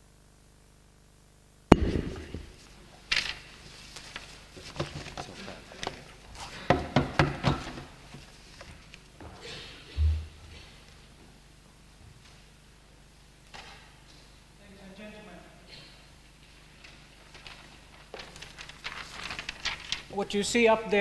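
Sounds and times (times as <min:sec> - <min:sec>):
loud thump: 0:01.7 - 0:02.6.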